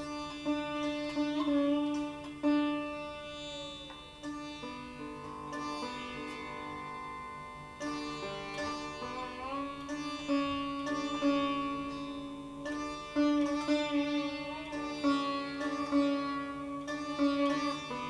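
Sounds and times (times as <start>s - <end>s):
sitar plucked notes: 0.0s - 18.0s.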